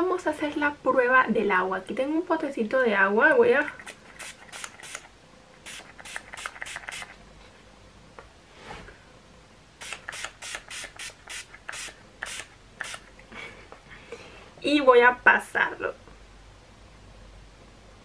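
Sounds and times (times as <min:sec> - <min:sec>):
spray bottle hissing: 0:03.8 - 0:07.2, 0:09.8 - 0:13.1.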